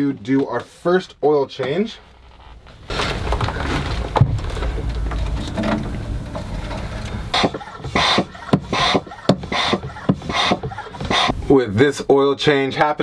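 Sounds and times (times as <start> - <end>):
low steady rumble: 2.0 - 9.2
pump rasping strokes: 6.3 - 11.4.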